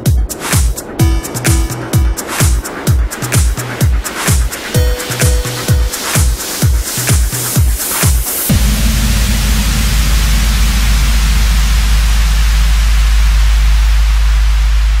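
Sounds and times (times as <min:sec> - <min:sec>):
deep constant rumble: 0:08.5 - 0:15.0.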